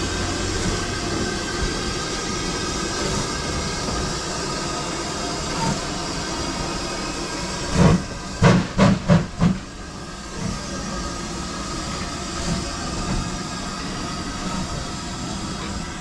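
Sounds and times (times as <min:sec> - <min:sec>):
hiss of steam: 0:00.0 - 0:16.0
steam locomotive exhaust chuffs: 0:00.0 - 0:16.0.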